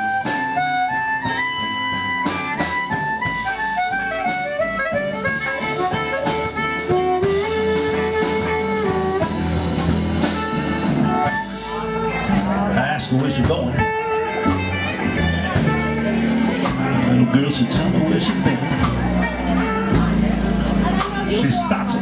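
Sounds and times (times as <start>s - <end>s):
harmonica with bending notes: 0.0s - 12.9s, 13.7s - 22.0s
drum kit: 0.0s - 22.0s
electric guitar: 0.0s - 22.0s
upright bass: 0.0s - 22.0s.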